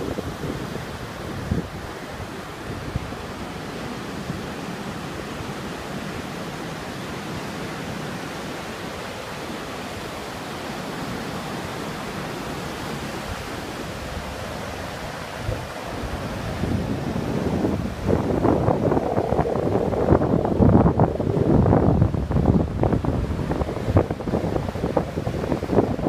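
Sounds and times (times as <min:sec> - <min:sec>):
wind buffeting microphone: 0:00.0 - 0:03.6, 0:13.2 - 0:26.0
waves breaking on beach: 0:00.0 - 0:26.0.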